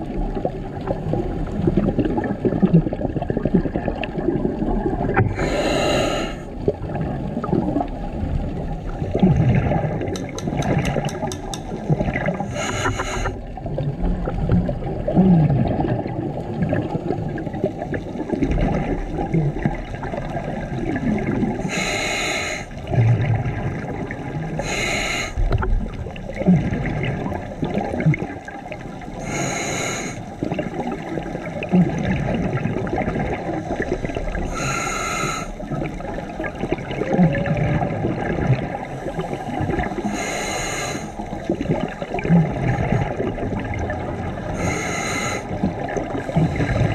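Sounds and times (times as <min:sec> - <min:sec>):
bubbles gurgling underwater: 0:00.0 - 0:46.9
regulator hissing on inhalation: 0:05.4 - 0:06.4, 0:12.5 - 0:13.4, 0:21.7 - 0:22.7, 0:24.6 - 0:25.4, 0:29.2 - 0:30.2, 0:34.5 - 0:35.5, 0:40.1 - 0:41.1, 0:44.6 - 0:45.5.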